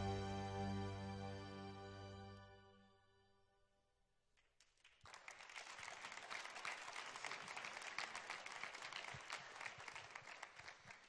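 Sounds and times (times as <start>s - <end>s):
crowd clapping: 4.4s - 11.0s.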